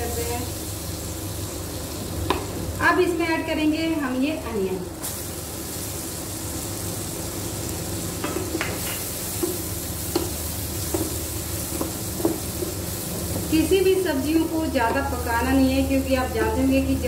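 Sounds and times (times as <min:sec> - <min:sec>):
onion sizzling in butter: 0:00.0 - 0:17.0
spatula scraping and tapping pan: 0:08.2 - 0:12.8.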